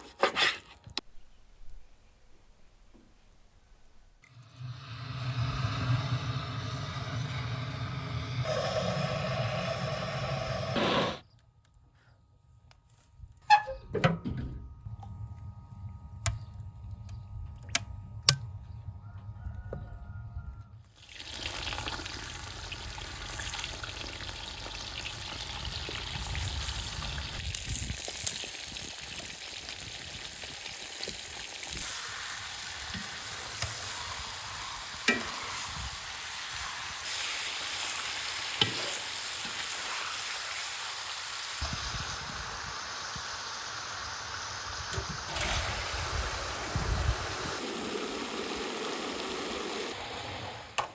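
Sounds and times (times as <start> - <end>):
low rumble: 4.4 - 10.8
meat sizzling in hot fat: 4.4 - 11.2, 21.0 - 50.5.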